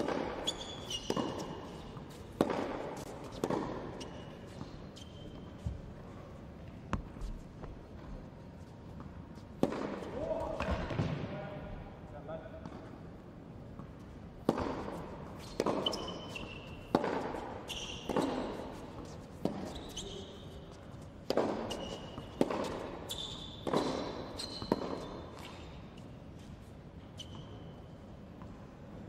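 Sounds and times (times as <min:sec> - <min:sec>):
tennis racket strikes: 0:00.0 - 0:04.3, 0:14.4 - 0:19.8, 0:21.2 - 0:23.0, 0:23.6 - 0:25.5
tennis ball bounces: 0:00.0 - 0:04.8, 0:08.9 - 0:11.2, 0:13.7 - 0:19.8, 0:21.2 - 0:25.6
court shoes squeaking: 0:00.0 - 0:11.1, 0:13.7 - 0:29.0.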